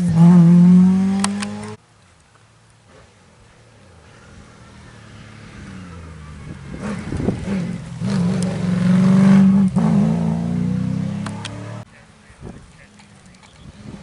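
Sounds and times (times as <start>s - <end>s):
rally car engine high-revving: 0.0s - 1.8s, 6.7s - 11.9s.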